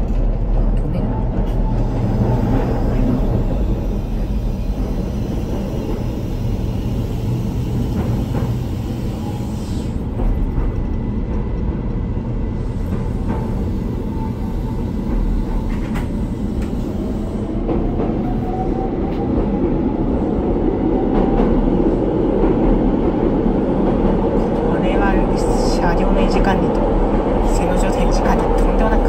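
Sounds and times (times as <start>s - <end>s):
train rumbling on board: 0.0s - 29.0s
high train squeal: 1.4s - 10.1s, 12.7s - 19.2s.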